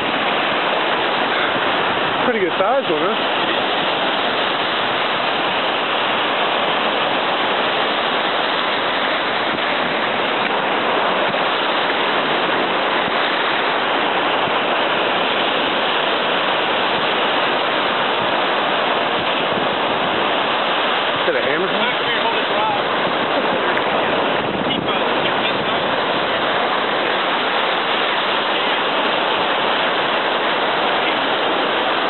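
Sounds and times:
ocean surf breaking: 0:00.0 - 0:32.0.

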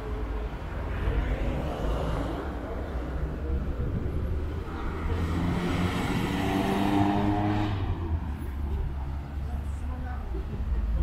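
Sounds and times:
car driving past: 0:04.8 - 0:09.2.

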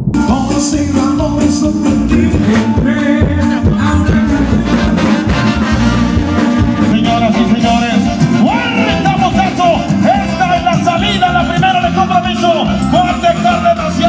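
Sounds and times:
brass band music: 0:00.0 - 0:14.0.

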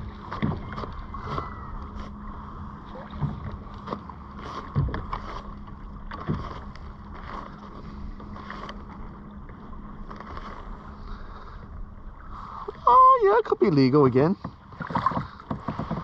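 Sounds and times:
steady low hum: 0:00.0 - 0:16.0
water lapping against hull: 0:00.0 - 0:16.0
dull knocks: 0:14.4 - 0:16.0.

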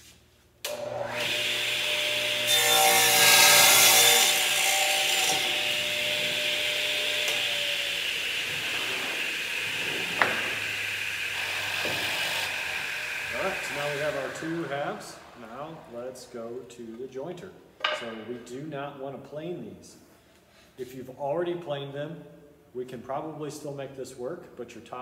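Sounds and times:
saw blade cutting wood: 0:00.7 - 0:15.9
radial arm saw motor running: 0:04.4 - 0:15.9.

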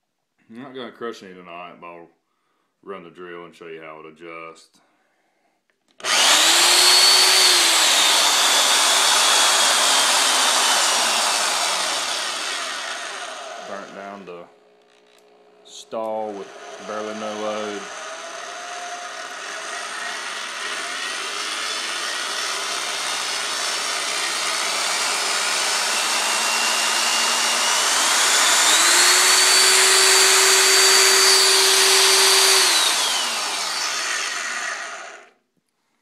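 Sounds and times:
electric drill motor whining: 0:06.0 - 0:35.4.

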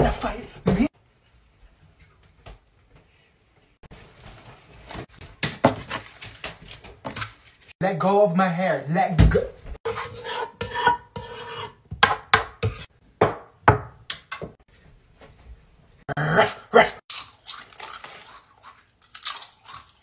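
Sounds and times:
spatula scraping a cooking pot: 0:09.8 - 0:12.9.

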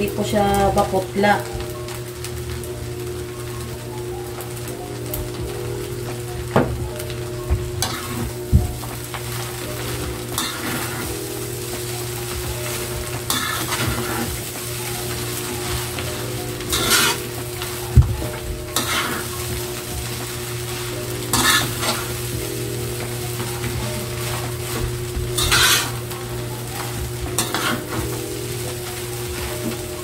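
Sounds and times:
rice sizzling: 0:00.0 - 0:30.0
metal spatula scraping wok: 0:07.8 - 0:08.3, 0:09.4 - 0:22.4, 0:23.3 - 0:26.2, 0:26.8 - 0:29.9.

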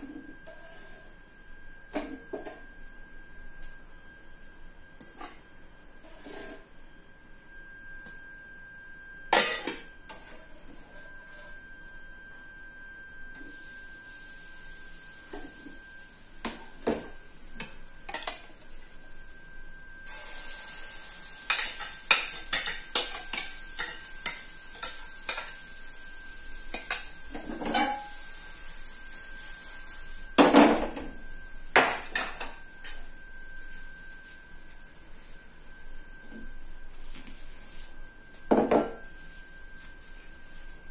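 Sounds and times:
batter sizzling on hot pan: 0:13.4 - 0:38.2
metal utensils clinking and scraping: 0:21.5 - 0:25.5, 0:26.7 - 0:28.2.

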